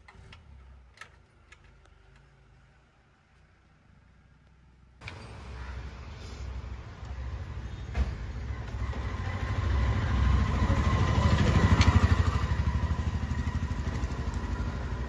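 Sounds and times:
vehicle engine running: 0:05.5 - 0:15.0.

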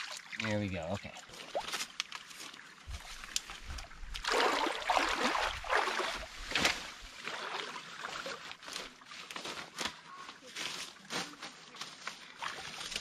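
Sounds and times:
water trickling: 0:00.0 - 0:08.6
stream water splashing: 0:00.0 - 0:13.0.

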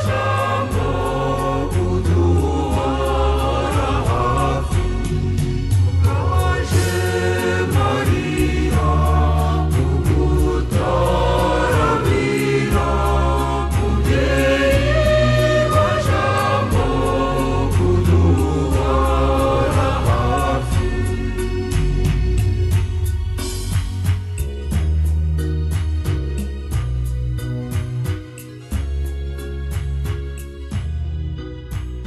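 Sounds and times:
choir singing: 0:00.0 - 0:23.6
bass line: 0:00.0 - 0:32.0
instrumental backing with beat: 0:00.0 - 0:32.0.

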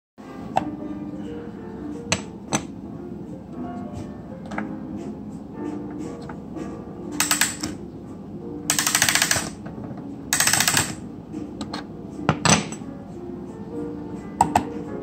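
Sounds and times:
clock winding ratchet clicks: 0:07.2 - 0:07.8, 0:08.7 - 0:09.6, 0:10.4 - 0:11.0.

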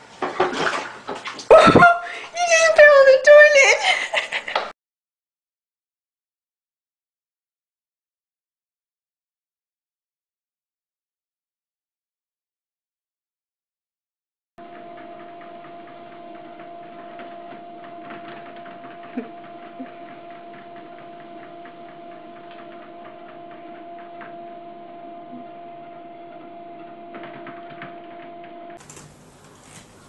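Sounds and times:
treadmill motor whine: 0:14.6 - 0:29.0.

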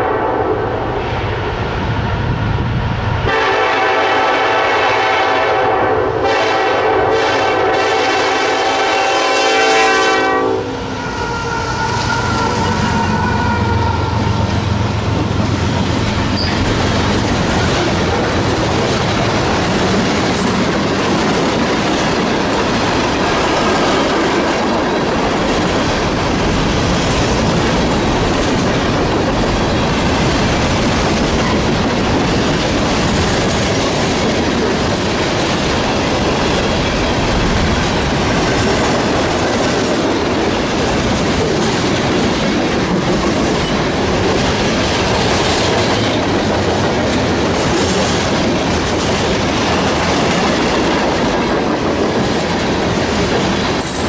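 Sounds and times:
train horn: 0:00.0 - 0:00.8, 0:03.3 - 0:15.2
diesel locomotive engines droning: 0:00.0 - 0:54.0.

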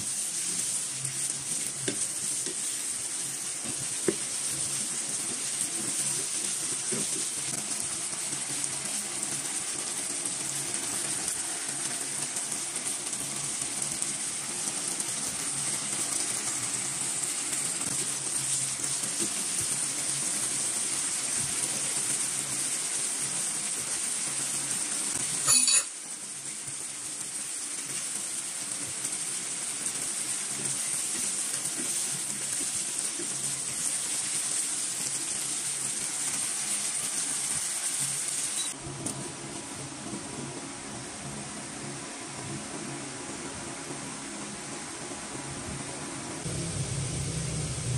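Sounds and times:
wooden spatula stirring food: 0:00.0 - 0:10.5, 0:17.3 - 0:22.2, 0:27.8 - 0:38.2
food sizzling in a pan: 0:00.0 - 0:39.2.

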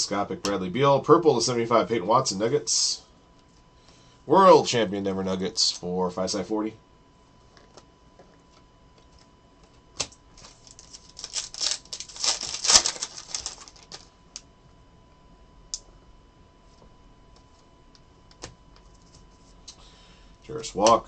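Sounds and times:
trading cards clicking and rustling: 0:10.0 - 0:14.1.

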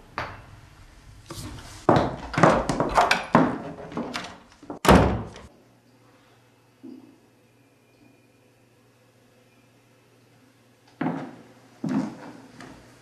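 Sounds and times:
knocks and scuffs: 0:01.3 - 0:05.4
wooden door shutting: 0:02.3 - 0:05.5.

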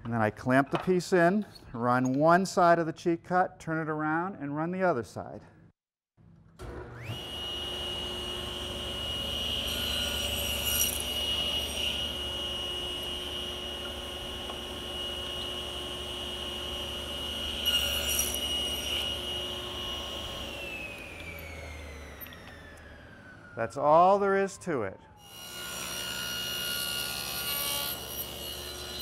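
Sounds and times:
saw spinning down: 0:06.6 - 0:23.6
table saw whining: 0:06.6 - 0:29.0
saw blade cutting wood: 0:07.0 - 0:22.9, 0:25.2 - 0:29.0.

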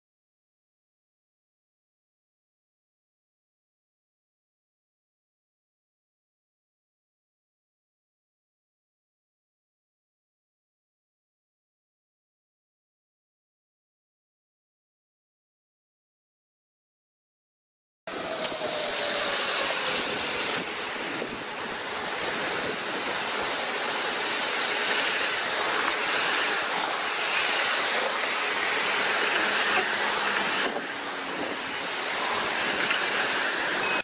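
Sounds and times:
strong storm wind rushing: 0:18.1 - 0:33.5.

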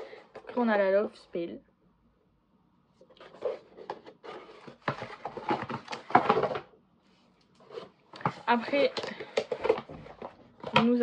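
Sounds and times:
objects knocking and clattering: 0:03.3 - 0:06.7, 0:07.8 - 0:11.0.

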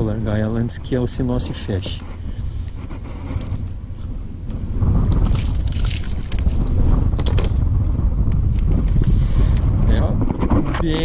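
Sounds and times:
wind buffeting microphone: 0:00.0 - 0:11.0
handling scraping and rustling: 0:01.0 - 0:04.1, 0:05.2 - 0:07.6.

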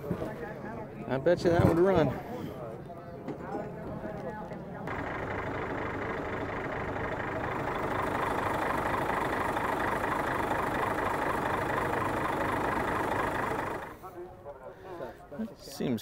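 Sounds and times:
diesel truck engine idling: 0:04.1 - 0:14.1.

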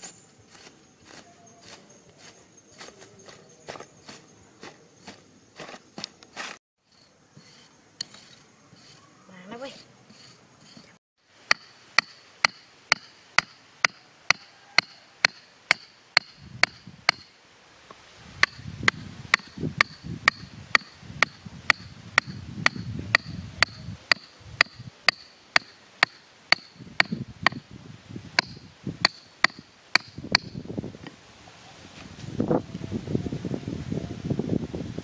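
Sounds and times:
hatchet knocking on wooden stake: 0:11.5 - 0:17.3, 0:18.4 - 0:27.6, 0:28.4 - 0:30.6.

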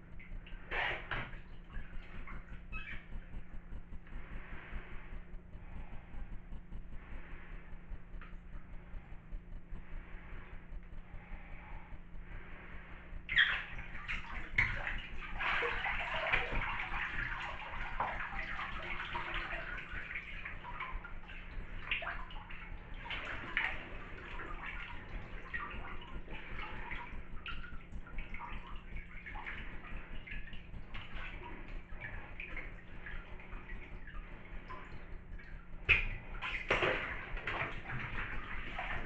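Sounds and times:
water sloshing in bathtub: 0:00.0 - 0:39.0
water dripping: 0:13.3 - 0:39.0.

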